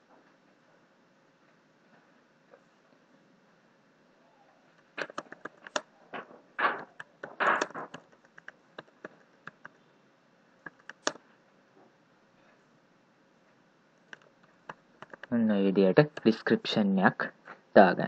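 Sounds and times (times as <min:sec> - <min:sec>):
computer keyboard typing: 0:05.0 - 0:05.9, 0:06.6 - 0:09.8, 0:10.6 - 0:11.2, 0:14.1 - 0:15.4, 0:16.0 - 0:16.4.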